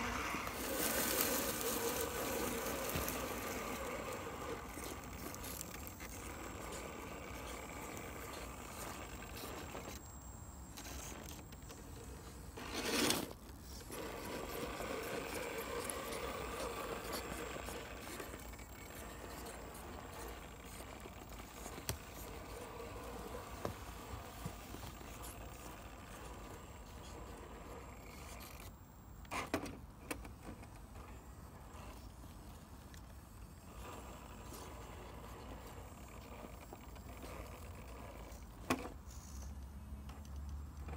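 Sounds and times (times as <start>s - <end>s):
rustling bursts: 0.0s - 9.9s
tyres scraping on stone: 0.0s - 10.0s, 12.6s - 28.7s
electric motor and gears whirring: 0.0s - 40.9s.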